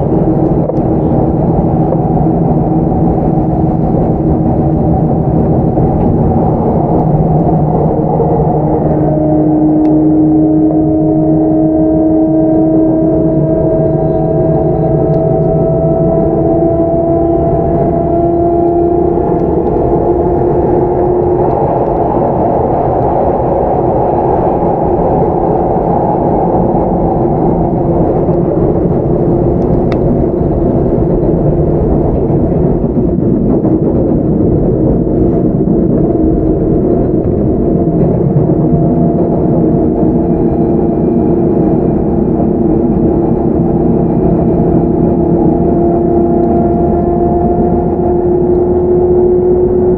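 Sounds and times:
electric train motor whine: 0:00.0 - 0:49.9
train wheels rumbling on rail: 0:00.0 - 0:49.9.

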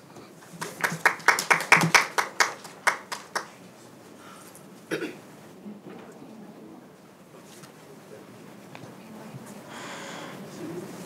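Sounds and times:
small audience applause: 0:00.5 - 0:03.7.

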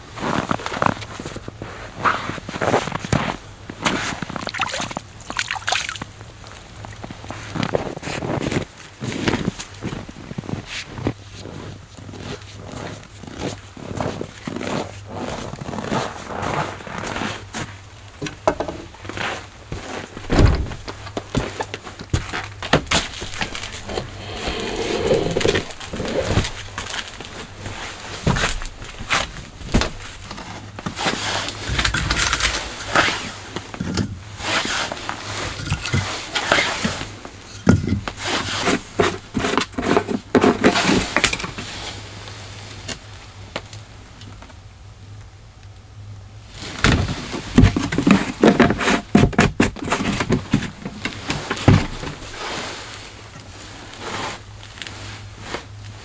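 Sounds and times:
firewood knocking and clattering: 0:18.2 - 0:18.9.

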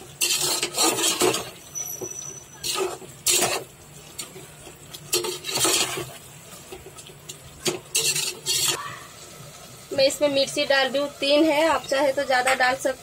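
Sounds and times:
metal spoon scraping a pot: 0:00.0 - 0:04.3, 0:05.0 - 0:06.2, 0:07.6 - 0:08.8.

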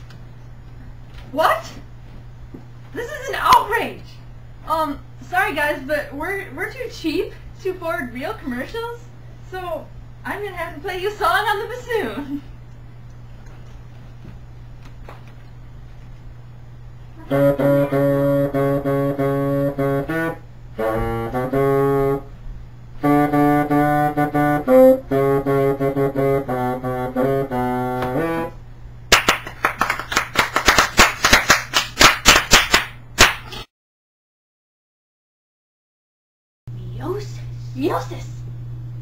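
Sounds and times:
bassoon playing a tune: 0:17.2 - 0:22.4, 0:23.0 - 0:28.6
hands clapping: 0:29.1 - 0:33.6.

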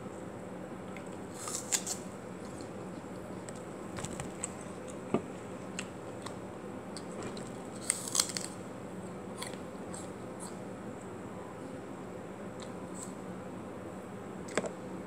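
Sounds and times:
faint steady hum: 0:00.0 - 0:15.0
crisp apple crunches: 0:01.3 - 0:02.7, 0:07.0 - 0:08.6.

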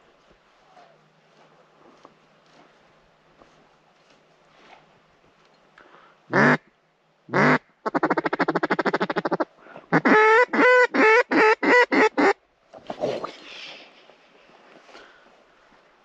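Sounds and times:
duck call quacks: 0:06.3 - 0:06.6, 0:07.3 - 0:12.4.

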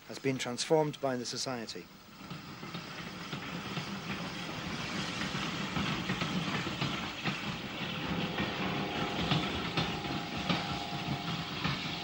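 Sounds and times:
train rolling rumble: 0:01.9 - 0:12.0
wheels clanking on rail joints: 0:02.2 - 0:12.0
faint steady tone: 0:07.6 - 0:12.0.

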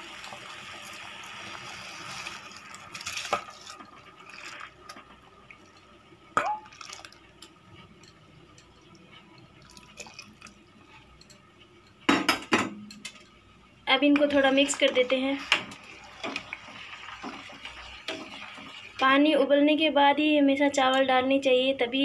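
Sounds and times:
rice and water poured into pot: 0:00.0 - 0:05.6, 0:06.6 - 0:07.2, 0:09.6 - 0:10.6
water dripping and splashing: 0:02.2 - 0:07.5, 0:09.5 - 0:10.6.

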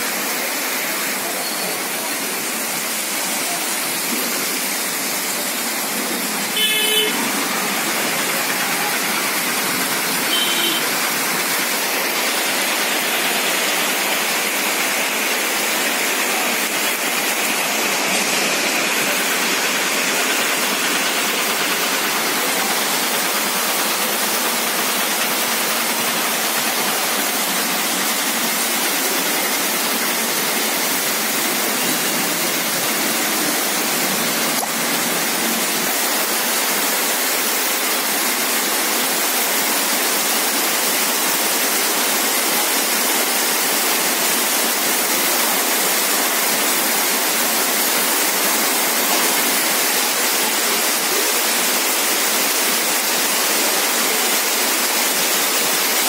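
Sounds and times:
heavy rain hiss: 0:00.0 - 0:56.0
vehicle horn beep: 0:06.5 - 0:07.3, 0:10.3 - 0:10.9.

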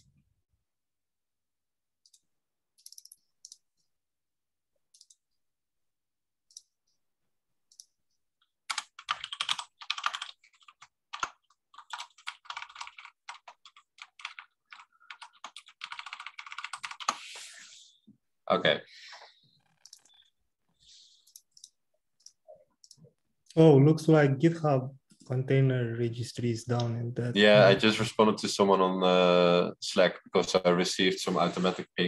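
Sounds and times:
computer keyboard typing: 0:02.0 - 0:03.7, 0:08.6 - 0:17.2, 0:19.7 - 0:20.3.

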